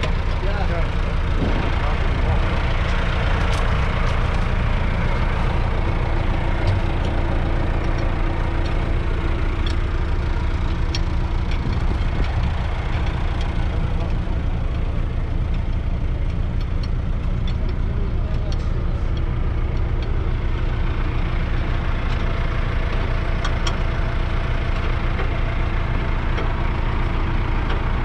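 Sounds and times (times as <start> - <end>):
diesel engine idling: 0.0 - 28.0
spanner clicks: 9.6 - 25.4.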